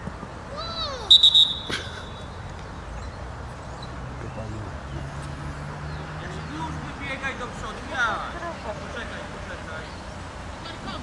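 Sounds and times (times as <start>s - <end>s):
referee's whistle blast: 1.1s - 1.8s.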